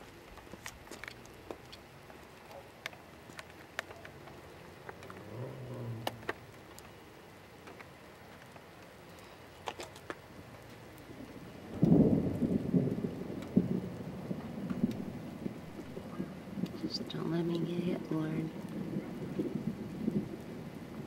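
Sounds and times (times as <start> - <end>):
low thunder rumble: 4.1 - 7.3, 10.4 - 21.0.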